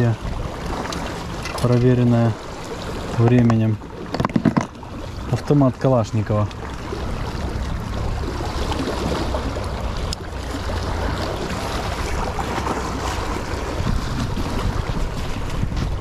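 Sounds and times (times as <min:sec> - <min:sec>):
sea waves on shore: 0:00.0 - 0:16.0
wind buffeting microphone: 0:06.8 - 0:16.0.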